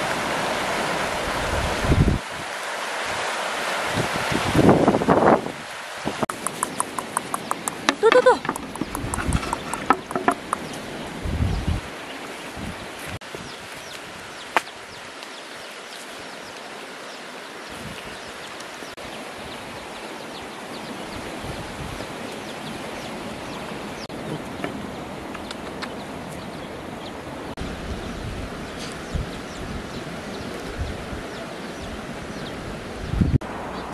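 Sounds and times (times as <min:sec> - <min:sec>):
steady outdoor hiss: 0:00.0 - 0:33.9.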